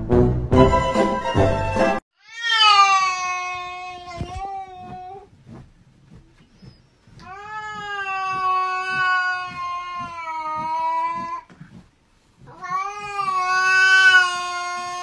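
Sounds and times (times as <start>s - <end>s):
cat yowling: 2.2s - 5.2s, 7.3s - 11.4s, 12.5s - 15.0s.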